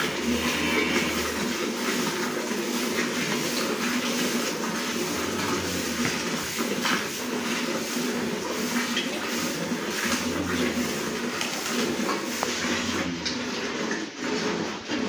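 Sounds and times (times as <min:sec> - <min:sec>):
steady low hum: 0:04.9 - 0:06.8.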